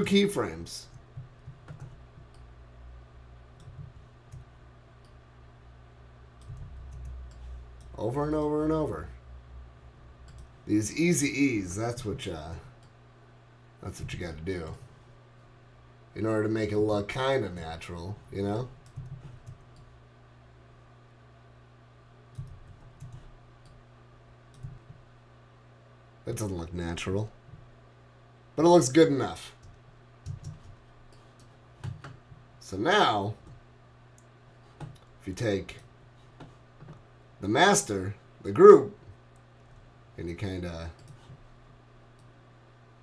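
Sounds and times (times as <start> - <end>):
low room hum: 0.0 - 43.0
keyboard clicks: 0.9 - 2.4, 6.4 - 8.0, 18.8 - 19.9, 22.3 - 23.8, 24.5 - 24.9, 29.6 - 32.2
computer mouse clicks: 3.6 - 5.2, 6.4 - 8.0, 10.2 - 10.5, 18.8 - 19.9, 22.3 - 23.8, 24.5 - 25.0, 29.6 - 32.2, 41.0 - 41.4.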